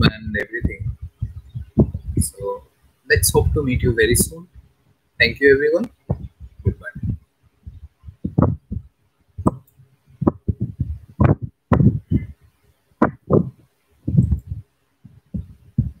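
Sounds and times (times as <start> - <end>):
handling thumps near microphone: 0.6 - 2.4, 5.9 - 9.6, 10.2 - 12.3, 13.0 - 14.6.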